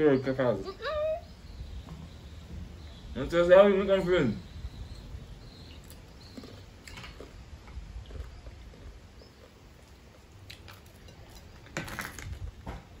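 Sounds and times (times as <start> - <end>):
crackers crunching: 5.8 - 12.7.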